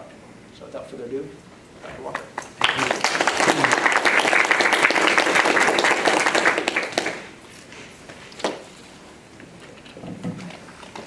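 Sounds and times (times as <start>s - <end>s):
audience applauding: 2.4s - 7.3s.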